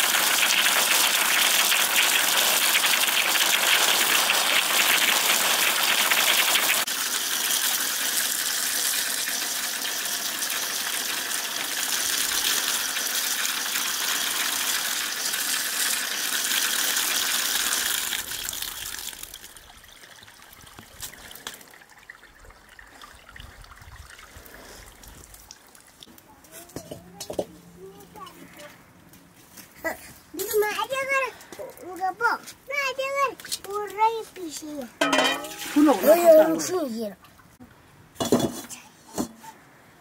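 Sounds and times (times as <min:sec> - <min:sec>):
water gushing onto vegetables: 0:00.0 - 0:26.0, 0:35.0 - 0:37.1.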